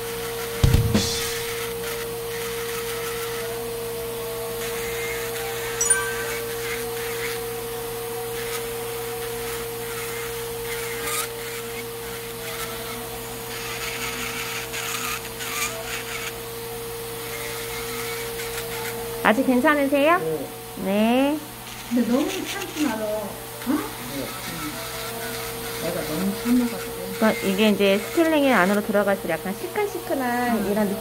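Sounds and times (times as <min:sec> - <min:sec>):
electric nail drill whining: 0:13.8 - 0:19.6, 0:21.6 - 0:31.0.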